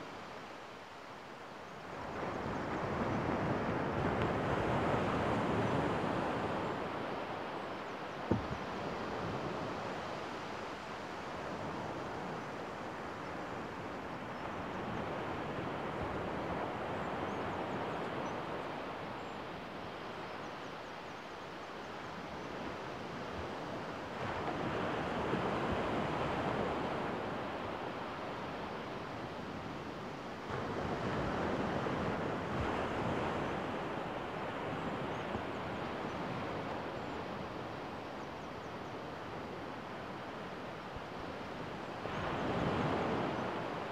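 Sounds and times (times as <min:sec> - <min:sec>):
small waves breaking on sand: 0:23.4 - 0:38.0.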